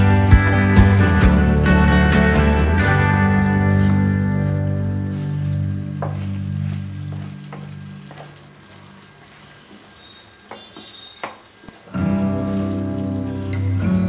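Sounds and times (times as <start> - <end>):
chicken sizzling in a wok: 2.8 - 14.0.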